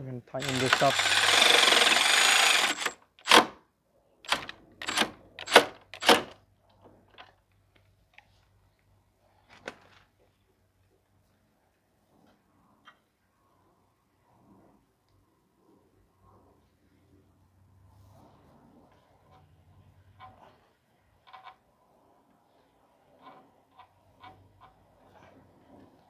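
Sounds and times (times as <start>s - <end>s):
ratchet wrench clicking: 0.4s - 3.4s.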